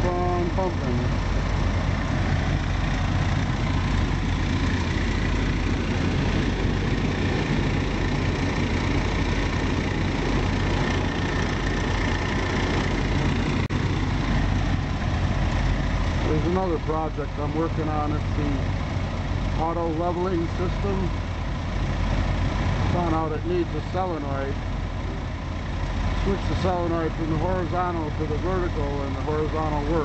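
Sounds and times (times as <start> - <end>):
air compressor running: 0.0 - 23.0
motorhome engine idling: 0.0 - 30.0.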